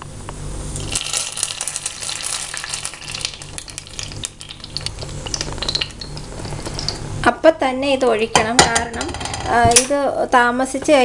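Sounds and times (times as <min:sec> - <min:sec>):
caramel sizzling: 0:00.0 - 0:07.4.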